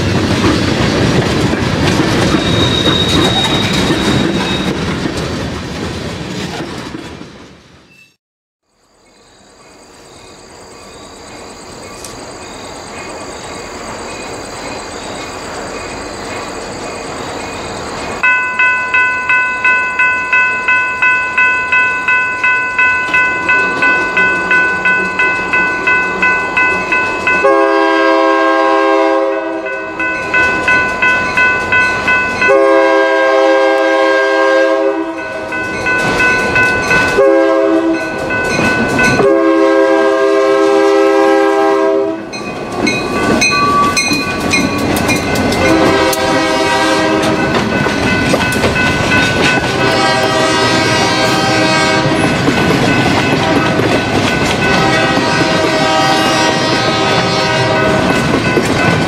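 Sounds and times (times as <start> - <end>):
train passing with wheel noise: 0.0 - 8.2, 8.9 - 59.0
railroad crossing bell ringing: 18.2 - 39.9, 42.2 - 59.0
locomotive air horn: 27.4 - 29.8, 32.4 - 35.4, 37.1 - 38.1, 39.2 - 42.4, 45.6 - 47.5, 49.7 - 52.4, 53.3 - 53.8, 54.6 - 58.2.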